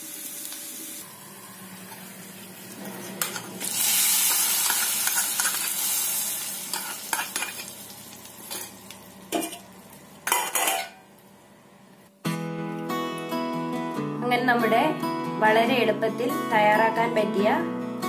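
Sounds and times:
hot oil sizzling: 0.0 - 11.4.

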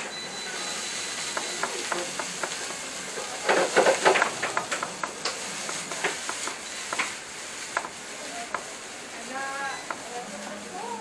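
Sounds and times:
cabbage sizzling in a pan: 0.5 - 11.0
utensil clicks: 3.5 - 8.7.

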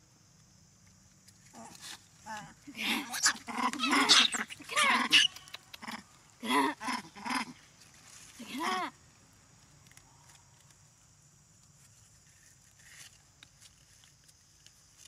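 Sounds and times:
macaque calls: 2.8 - 7.6.

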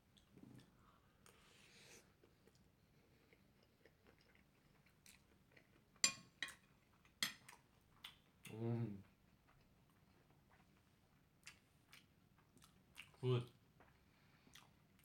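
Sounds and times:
metal spoon clinking on plate: 6.0 - 6.6.

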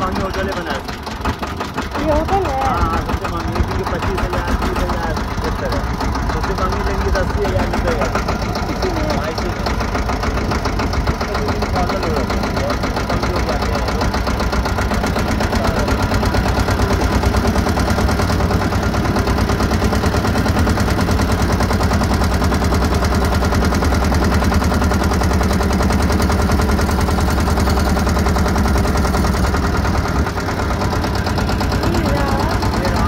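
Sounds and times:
motorboat engine running: 0.0 - 33.0.

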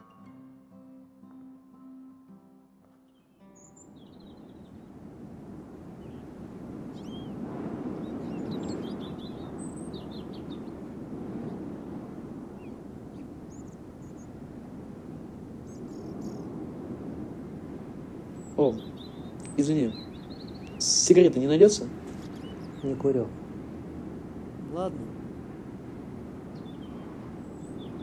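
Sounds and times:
small birds chirping: 3.1 - 4.9, 6.0 - 11.6, 12.6 - 14.4, 15.6 - 16.5, 18.3 - 23.4, 26.5 - 28.0.

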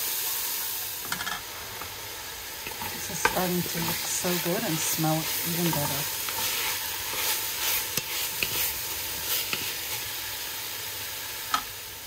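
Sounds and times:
vegetables sizzling in a pot: 0.0 - 12.0
wooden spoon scraping a pot: 2.6 - 10.1.

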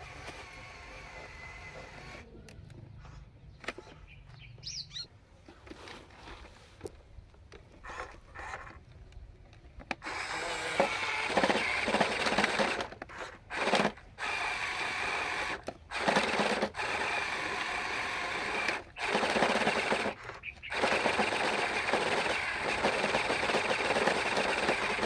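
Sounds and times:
toy truck motor whirring: 0.0 - 2.3, 7.8 - 8.9, 9.9 - 25.0.

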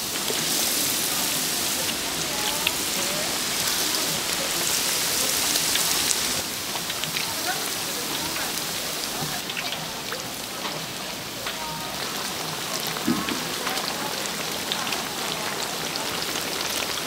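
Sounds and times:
oil sizzling in deep fryer: 0.0 - 17.0.

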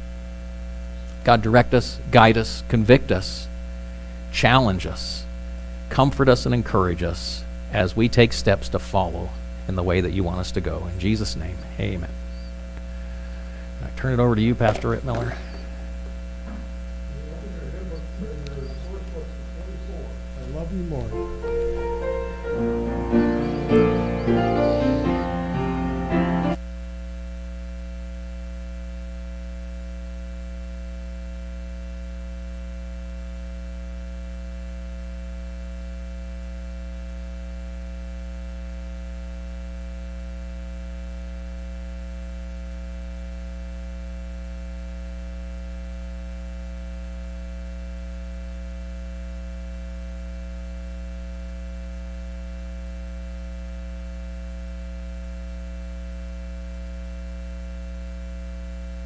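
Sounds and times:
buzzy electrical mains hum: 0.0 - 59.0
piano note: 20.4 - 26.6.

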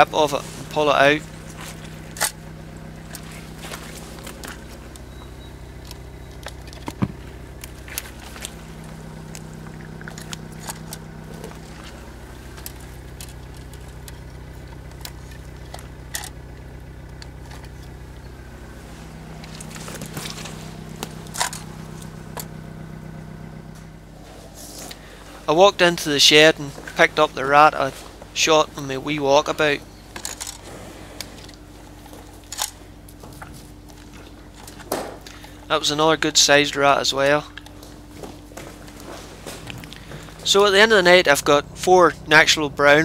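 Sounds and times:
low mechanical hum: 0.0 - 43.0
dry stems crackling: 0.4 - 22.6
metal grabbers clicking and scraping: 9.2 - 16.4, 19.4 - 22.5.

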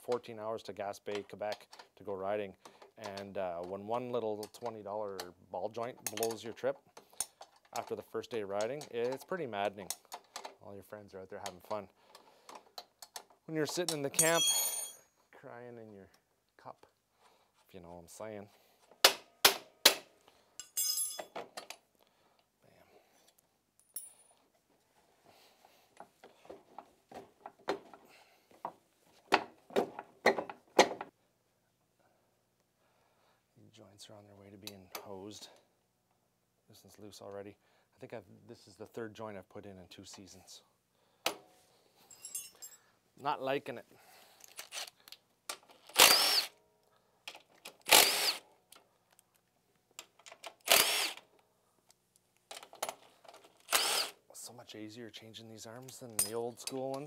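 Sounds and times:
wrench clicking and knocking on metal: 6.0 - 6.4
cordless drill motor whine: 46.0 - 46.5, 47.9 - 48.4, 50.7 - 51.2, 53.7 - 54.1.

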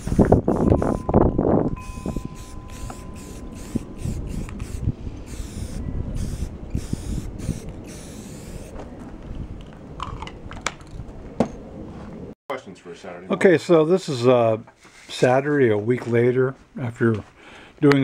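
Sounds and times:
spray paint can hissing: 1.8 - 8.8.

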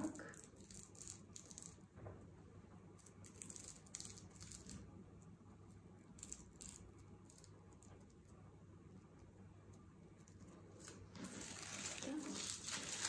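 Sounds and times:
paper and fabric rustling: 10.6 - 13.0.

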